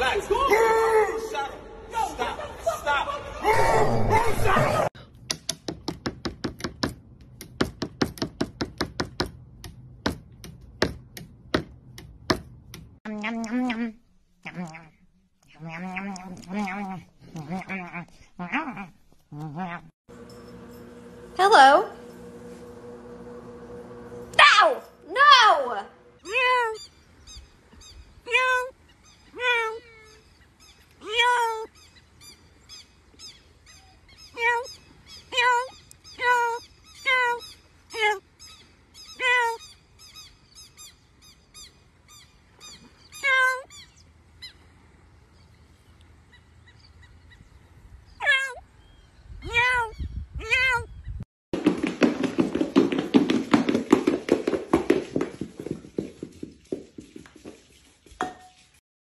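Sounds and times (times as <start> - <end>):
parrot imitating cat meows: 43.2 - 43.7, 48.2 - 48.6, 49.4 - 50.9.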